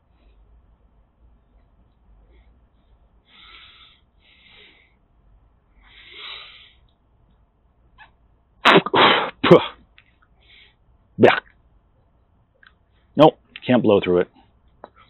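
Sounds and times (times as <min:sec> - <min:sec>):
person blowing into rubber hose: 0:08.7 - 0:09.6.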